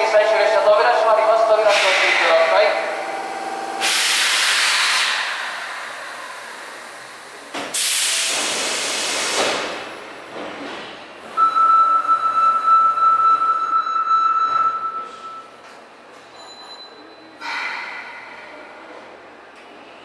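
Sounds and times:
steady high-pitched whine: 0.0s - 4.4s
compressed air hiss: 3.8s - 5.9s, 7.7s - 9.8s.

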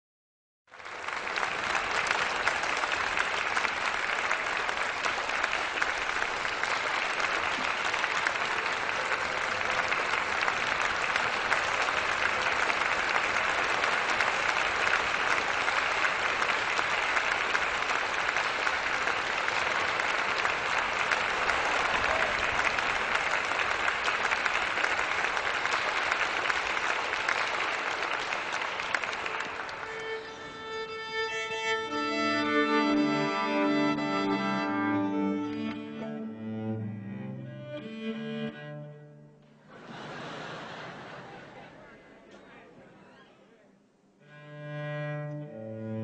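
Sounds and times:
audience applauding: 0.7s - 30.9s, 39.6s - 42.8s.

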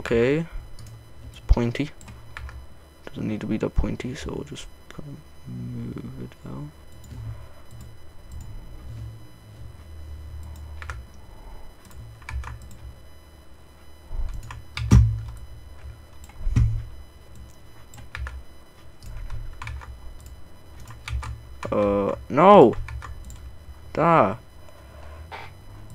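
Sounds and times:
keyboard keys clicking: 11.8s - 12.9s, 14.2s - 15.4s, 16.2s - 18.4s, 19.0s - 23.5s.

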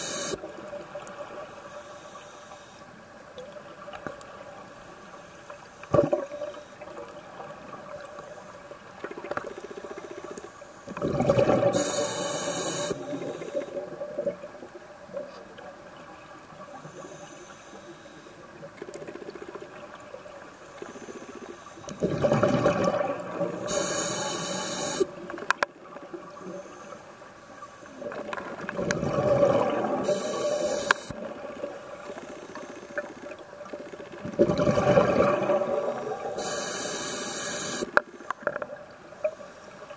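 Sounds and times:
underwater background: 0.0s - 39.9s
diver breathing through regulator: 11.6s - 13.8s, 23.4s - 25.1s, 30.0s - 31.2s, 35.9s - 38.0s.

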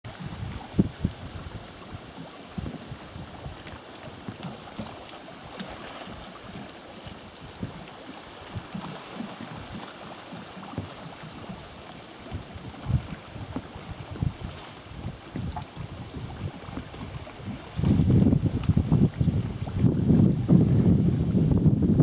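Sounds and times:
wind buffeting microphone: 0.0s - 5.0s, 10.6s - 22.0s
water lapping: 0.0s - 20.8s.

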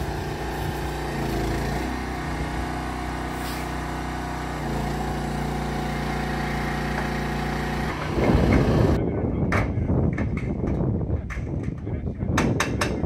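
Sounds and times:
boom lift power unit running: 0.0s - 9.0s
loud rough mechanical noise: 0.0s - 9.0s.

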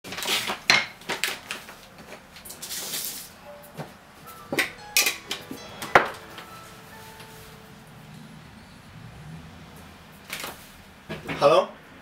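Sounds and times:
rustling of things handled: 0.1s - 3.9s.

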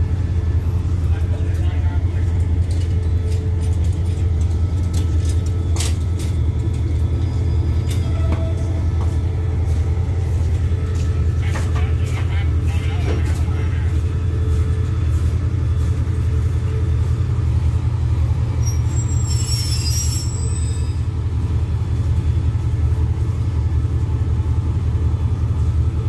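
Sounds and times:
diesel train engines idling: 0.0s - 26.0s
high squeal: 18.6s - 21.1s.

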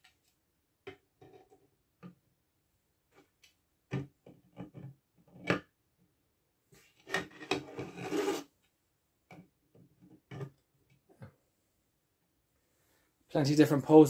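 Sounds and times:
plastic scraping on plastic: 6.8s - 8.5s.

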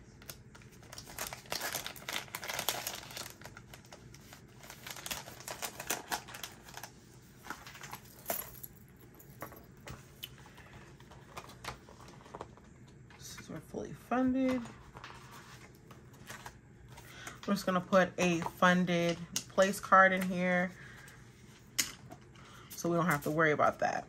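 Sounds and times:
paper cards rustling: 10.0s - 13.2s, 14.5s - 20.4s.

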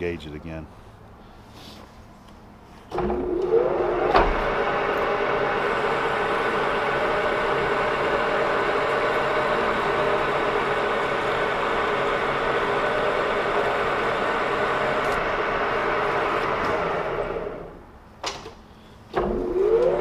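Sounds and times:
lathe gear tones: 2.9s - 17.6s, 19.2s - 20.0s
lathe motor whine and hum: 3.0s - 17.8s, 19.2s - 20.0s.

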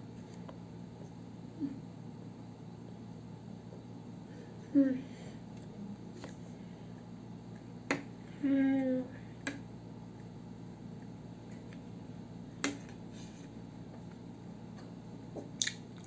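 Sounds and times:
child humming mm: 1.5s - 1.9s, 4.6s - 5.2s, 8.3s - 9.3s.

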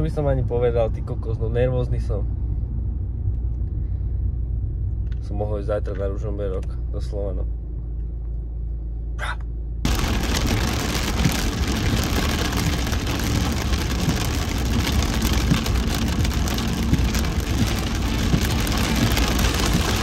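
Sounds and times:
road rumble inside a car: 0.0s - 20.0s
heavy rain on car roof: 9.9s - 20.0s.

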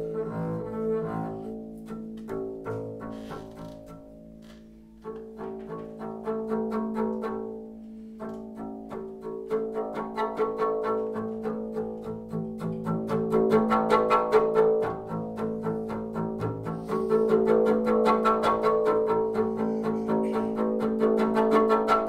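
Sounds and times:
bowed double bass strokes: 0.0s - 22.0s.

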